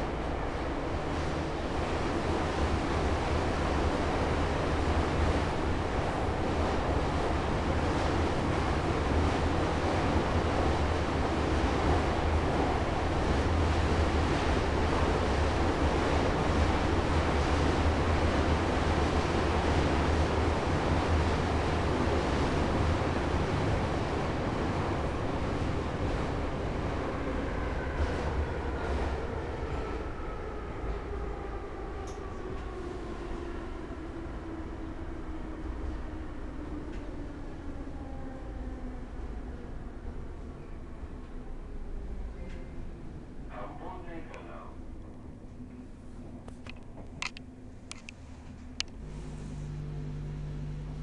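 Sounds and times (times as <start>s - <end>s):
metro car running in tunnel: 0.0s - 51.0s
deep low hum: 44.8s - 51.0s.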